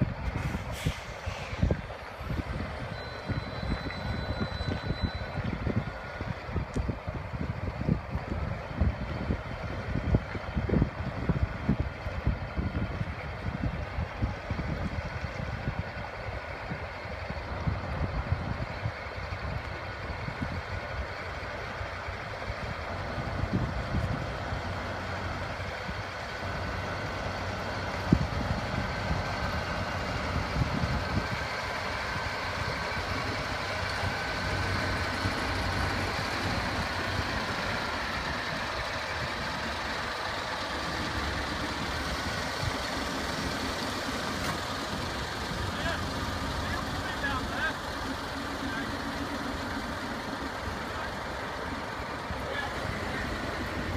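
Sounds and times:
truck diesel engine running: 0.0 - 53.9
tyre and road noise: 0.0 - 53.9.

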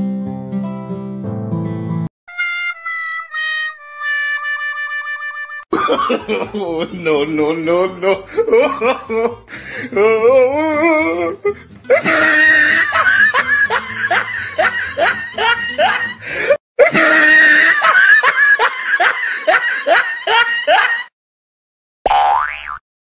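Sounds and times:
background music: 0.0 - 16.5
loud laughter in bursts: 5.8 - 7.2, 11.9 - 21.1.

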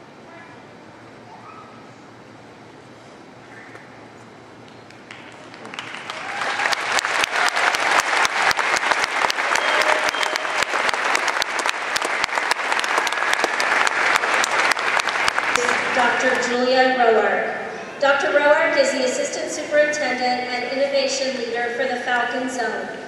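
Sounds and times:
audience applauding: 4.9 - 16.4.

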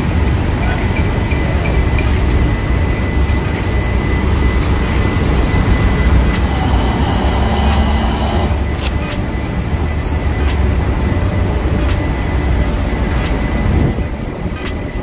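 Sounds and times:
engine room machinery rumble: 0.0 - 15.0
thin high tone: 0.6 - 10.0.

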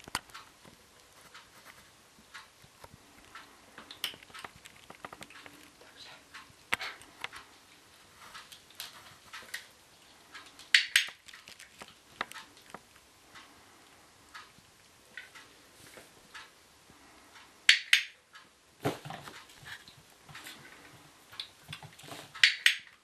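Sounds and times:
kittens chewing treats: 2.8 - 15.6.

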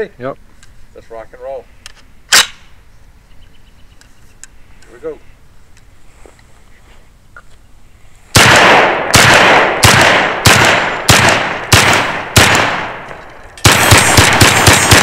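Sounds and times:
shotgun shots: 8.3 - 15.0.

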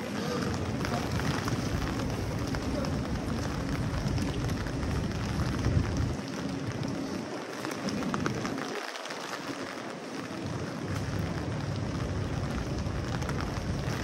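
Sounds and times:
low rumble: 0.0 - 7.2
rain on a wet street: 0.0 - 14.0.

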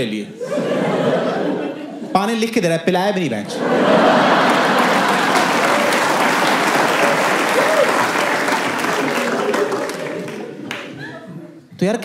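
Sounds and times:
audience applauding: 3.8 - 11.2.

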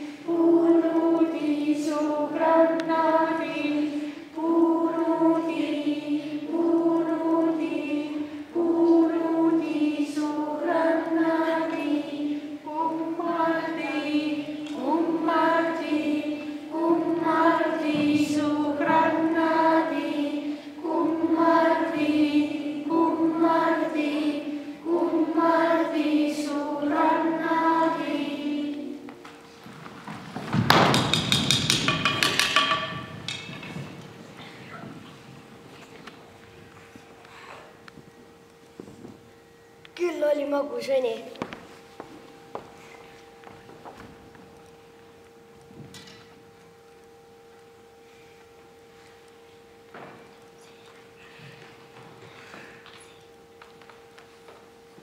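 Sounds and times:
children singing in unison: 0.0 - 29.5.

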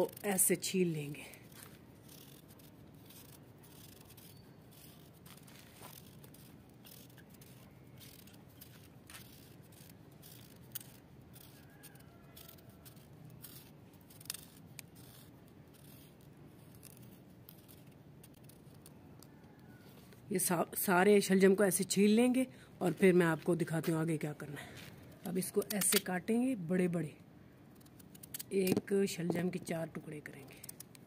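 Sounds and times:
knife scraping turnip skin: 0.0 - 19.8.

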